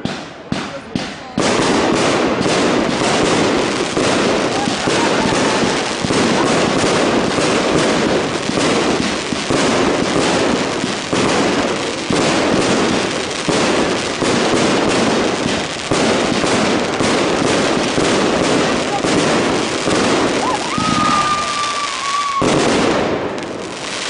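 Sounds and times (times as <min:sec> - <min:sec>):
fireworks bangs and crackle: 0:00.0 - 0:24.0
loud firework bursts: 0:00.0 - 0:24.0.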